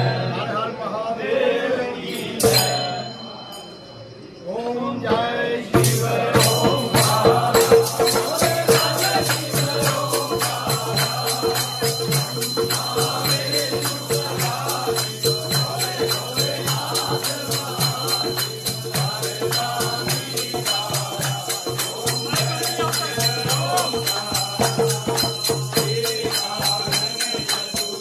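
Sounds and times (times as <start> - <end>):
group singing devotional song: 0.0 - 28.0
dholak drum beat: 2.4 - 3.2, 5.2 - 28.0
hand clapping: 8.4 - 15.2, 25.7 - 28.0.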